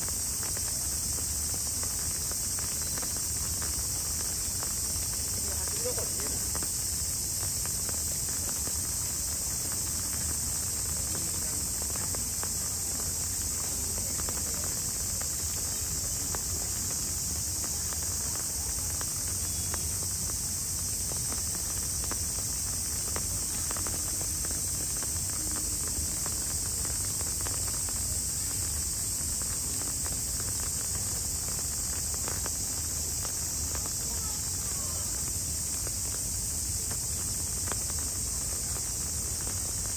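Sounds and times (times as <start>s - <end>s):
insect chorus drone: 0.0s - 39.9s.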